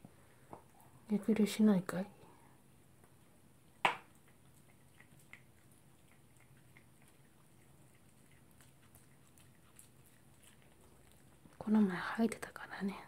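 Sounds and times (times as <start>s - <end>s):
dog chewing food: 2.7s - 11.6s.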